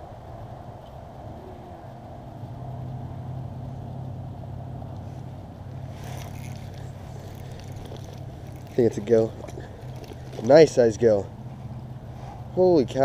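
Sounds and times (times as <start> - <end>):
motor humming low: 1.1 - 12.6
fishing reel clicking and rattling: 5.9 - 11.0.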